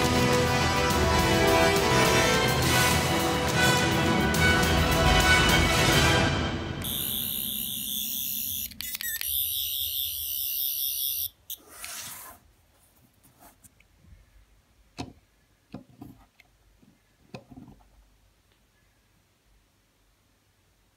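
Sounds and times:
warbling electronic toy buzz: 6.8s - 11.7s.

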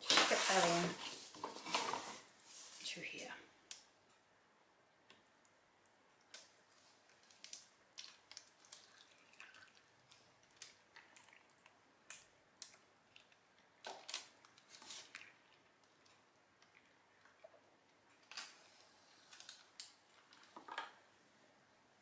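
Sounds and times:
soft splats of batter pouring: 5.0s - 20.7s.

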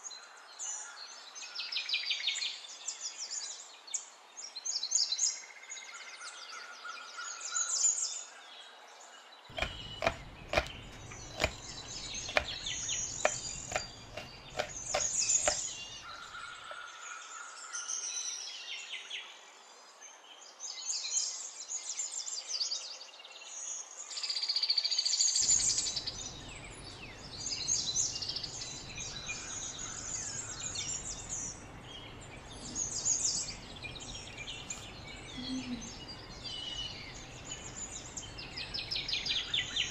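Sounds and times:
knife cutting on cutting board: 9.5s - 16.3s
birds chirping: 9.5s - 17.6s, 25.4s - 39.9s.

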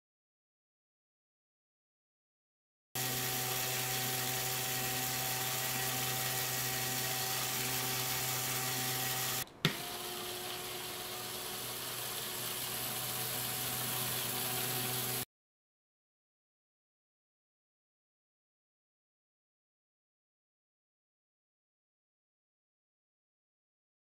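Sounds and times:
small electric motor whirring: 3.0s - 15.2s.

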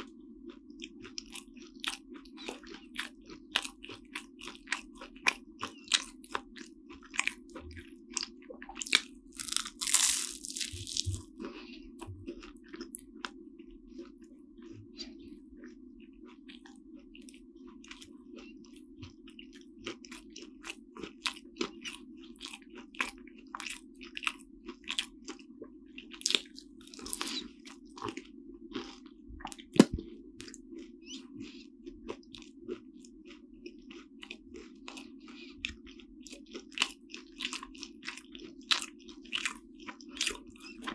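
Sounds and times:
chewing flaky pastry: 0.0s - 40.9s
crunching: 8.8s - 11.6s.

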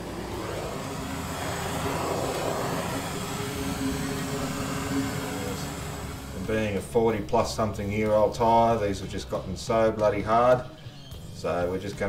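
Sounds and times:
blowtorch hissing: 0.0s - 6.8s.

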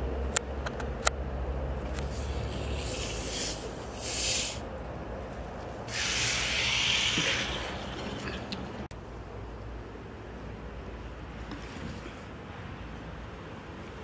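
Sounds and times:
carbonation hissing: 2.0s - 4.7s, 5.9s - 8.9s.

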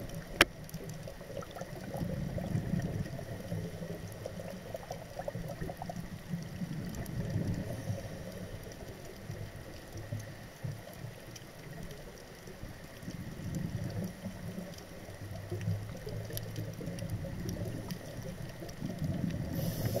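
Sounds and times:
faint clicks: 0.0s - 20.0s.

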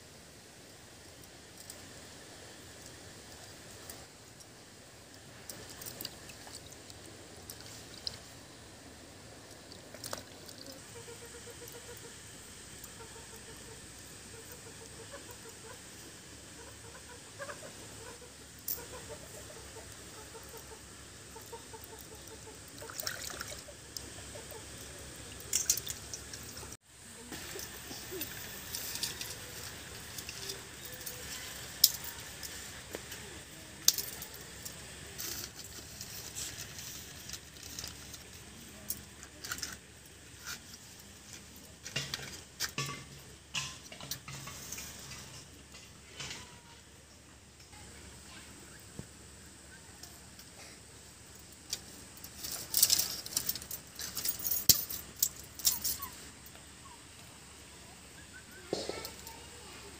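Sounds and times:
twigs rustling and ticking: 1.1s - 16.0s, 16.6s - 46.5s, 51.2s - 57.3s
bangles clinking: 52.3s - 56.2s.

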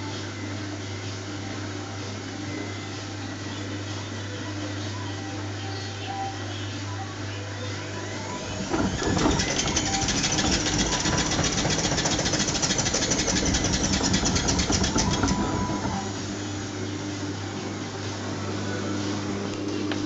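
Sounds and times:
washing machine low hum: 7.1s - 20.0s
washing machine drum whirring: 7.9s - 17.4s.

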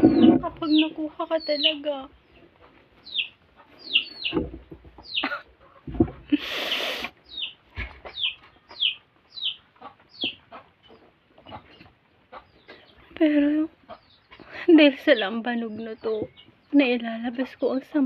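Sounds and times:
chickens peeping: 0.0s - 17.6s
soft knocks: 4.2s - 5.2s, 5.8s - 6.3s.

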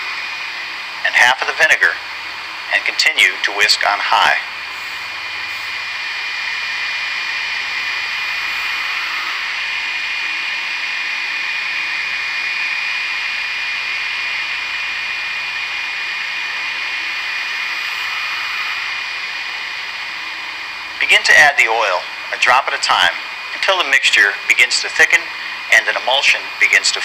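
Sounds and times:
stand mixer motor whine: 4.5s - 21.0s.

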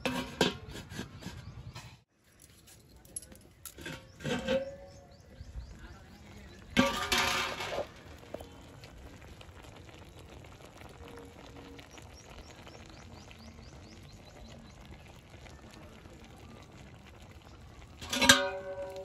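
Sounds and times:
metal lid clattering: 0.0s - 1.1s, 3.2s - 5.2s, 6.7s - 8.0s, 18.0s - 19.0s.

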